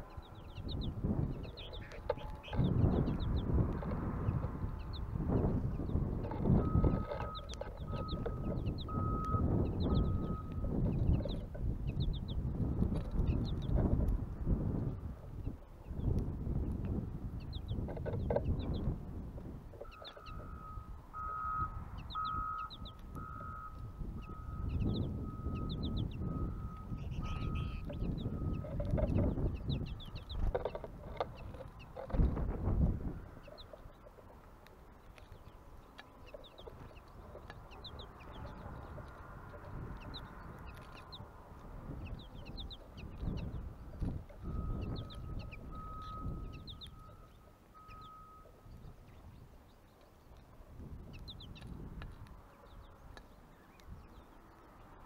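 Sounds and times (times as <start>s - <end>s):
low outdoor rumble: 0.0s - 55.0s
small birds chirping: 0.0s - 55.0s
reversing alarm beeping: 6.5s - 10.7s, 19.8s - 28.7s, 44.4s - 48.9s.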